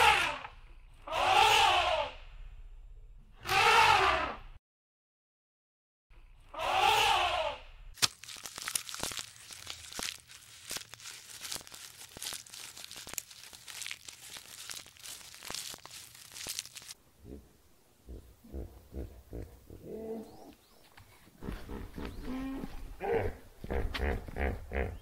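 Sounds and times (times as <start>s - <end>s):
leafy branches crackling and snapping: 8.0s - 17.0s.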